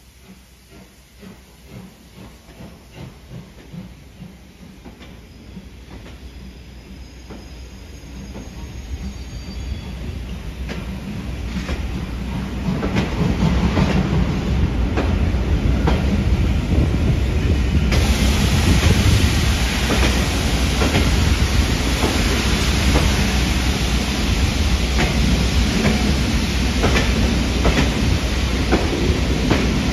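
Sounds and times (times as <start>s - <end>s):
train wheels rumbling on rails: 0.0s - 29.9s.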